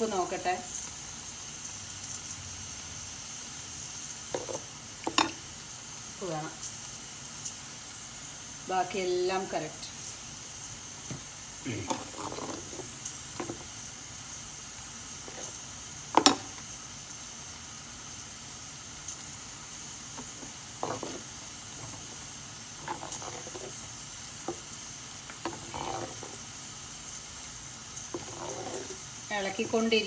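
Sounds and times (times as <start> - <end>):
steady hiss: 0.0 - 30.0
ladle scraping clay pot: 11.9 - 13.6, 15.2 - 15.6, 20.2 - 23.8, 25.4 - 26.4, 28.1 - 29.1.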